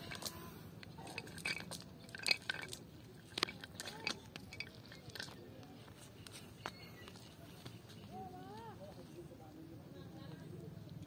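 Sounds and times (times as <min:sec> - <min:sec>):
net sinker weights clinking: 0:00.0 - 0:05.4.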